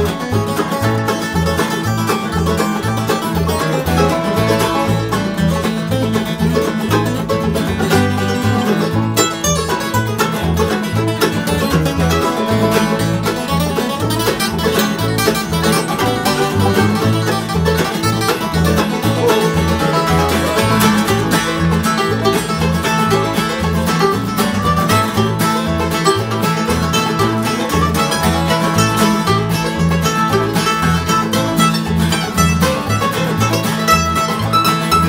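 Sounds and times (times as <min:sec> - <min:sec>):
acoustic guitars picking: 0:00.0 - 0:35.0
banjo: 0:00.0 - 0:35.0
mandolin: 0:00.0 - 0:35.0
upright bass: 0:00.0 - 0:35.0.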